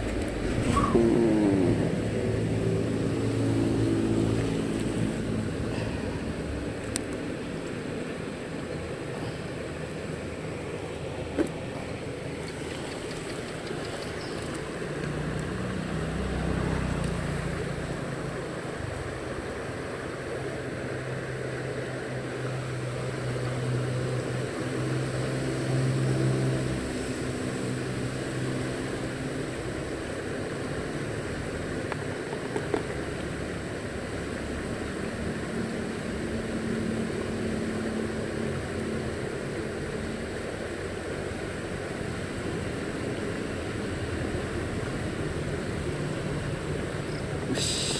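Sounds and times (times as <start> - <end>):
fainter higher engine hum: 0.0 - 32.3, 32.9 - 47.9
passing vehicle engine hum: 0.0 - 47.9
steady background hiss: 0.0 - 47.9.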